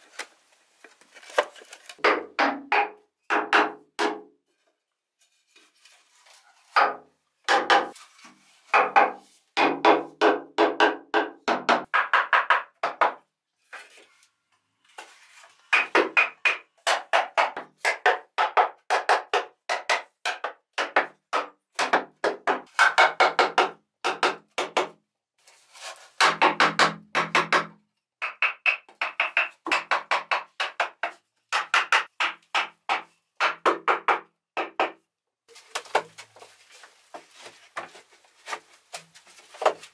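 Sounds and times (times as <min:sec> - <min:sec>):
wood knocking hollow bamboo tubes: 0:02.0 - 0:04.3, 0:15.7 - 0:25.0, 0:26.2 - 0:35.0.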